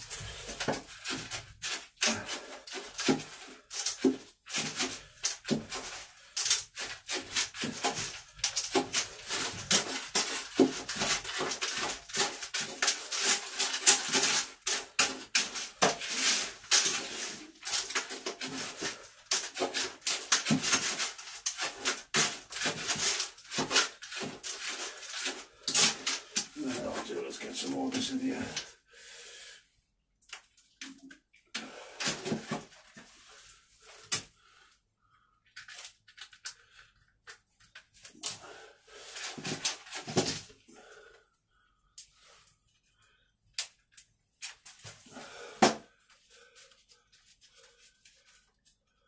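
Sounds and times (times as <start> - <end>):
scoop scraping compost in metal bucket: 0.0 - 28.6.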